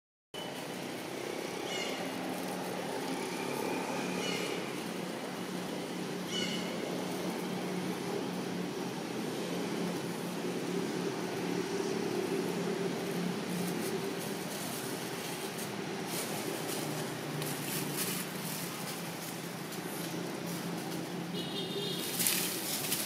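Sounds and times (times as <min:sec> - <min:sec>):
faint scratchy rustles: 0:13.0 - 0:21.3, 0:21.9 - 0:23.0.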